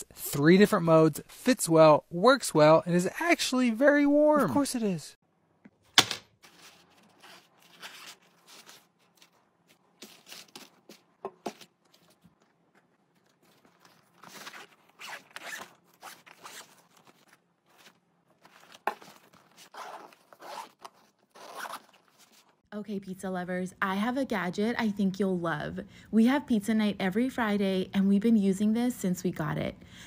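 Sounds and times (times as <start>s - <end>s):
zippers rasping: 13.4s - 17.3s, 18.8s - 22.4s.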